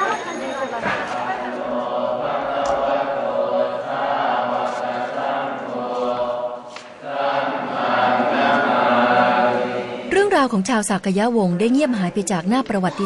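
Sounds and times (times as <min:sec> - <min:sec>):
voices chanting in unison: 0:00.9 - 0:10.1.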